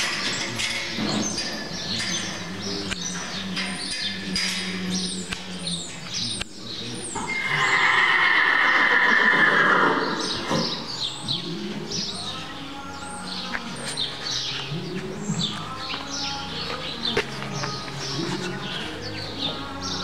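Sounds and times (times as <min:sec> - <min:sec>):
small birds chirping: 0:00.0 - 0:08.4, 0:09.7 - 0:20.0
horse whinnying: 0:07.2 - 0:10.7.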